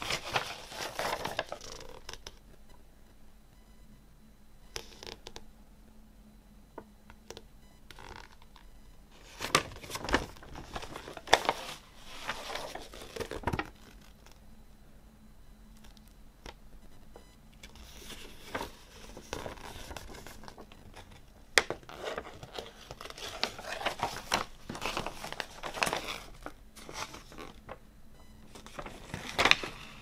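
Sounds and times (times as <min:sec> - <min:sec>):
paper rustling and crinkling: 0:00.0 - 0:02.3, 0:08.0 - 0:14.4, 0:17.6 - 0:27.8, 0:28.4 - 0:30.0.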